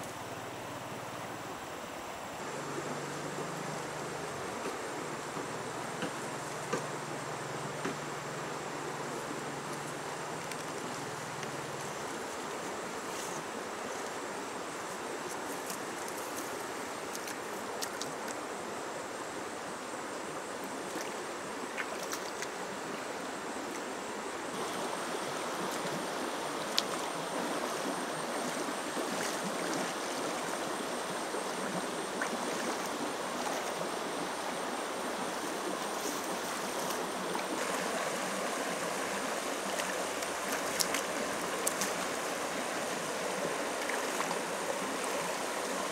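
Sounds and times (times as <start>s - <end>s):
river running over rocks: 0.0s - 45.9s
splashes from wading: 24.5s - 30.7s, 31.4s - 33.8s, 35.4s - 45.9s.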